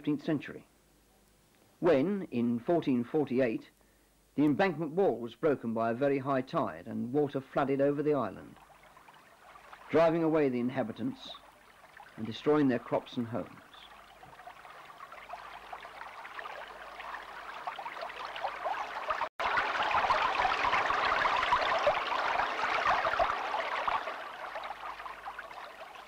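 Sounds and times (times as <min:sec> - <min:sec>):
rushing splashing water: 0:08.5 - 0:26.0.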